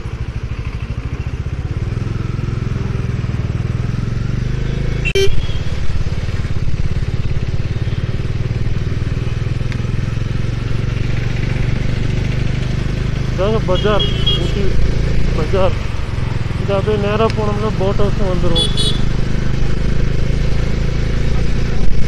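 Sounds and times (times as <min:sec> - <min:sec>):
motorcycle engine at low revs: 0:00.0 - 0:22.0.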